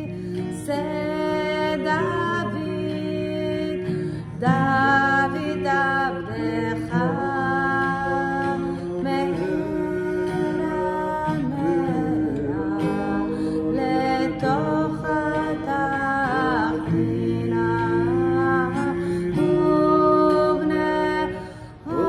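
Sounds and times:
acoustic guitar: 0.0 - 22.0
woman and man singing: 0.0 - 22.0.

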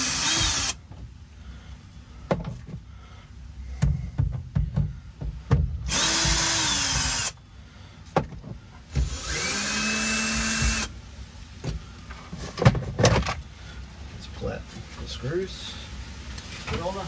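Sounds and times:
cordless drill motor running: 0.0 - 0.8, 5.9 - 7.4, 9.0 - 10.9.

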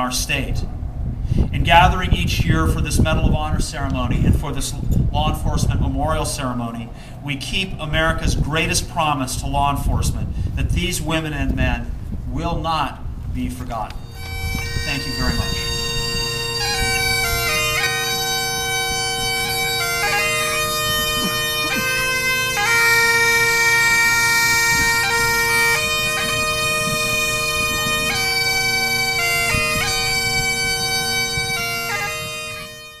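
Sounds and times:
bagpipe drone: 14.0 - 33.0
bagpipes playing a tune: 14.0 - 33.0.

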